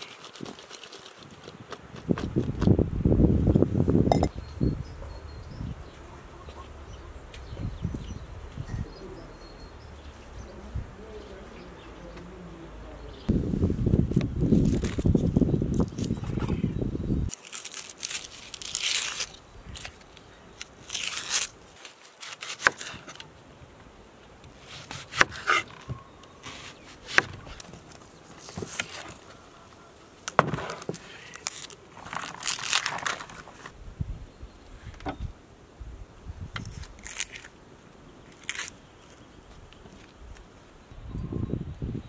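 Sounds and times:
onion skin crinkling and tearing: 14.1s - 16.2s, 17.3s - 23.3s, 30.2s - 33.8s, 36.6s - 37.6s, 38.3s - 40.5s
knife blade scraping: 24.7s - 25.8s.

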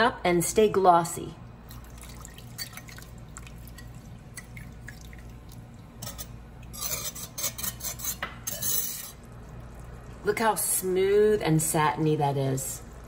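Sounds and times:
whisk stirring and clattering: 6.0s - 9.2s.

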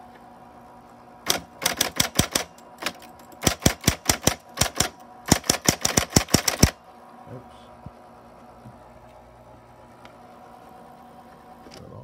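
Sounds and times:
typewriter motor humming: 1.2s - 6.8s
typewriter keys striking: 1.3s - 6.7s.

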